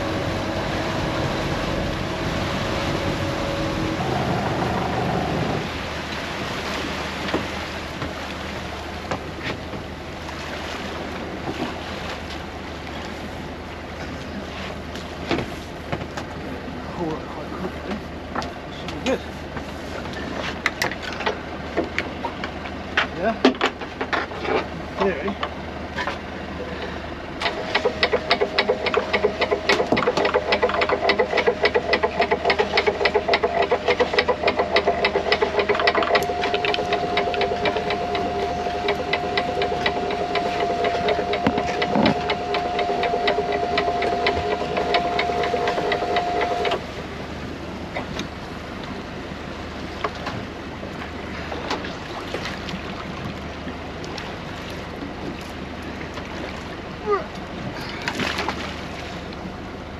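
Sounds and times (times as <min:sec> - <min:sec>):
small motor ticking and whining: 0:27.4 - 0:46.8.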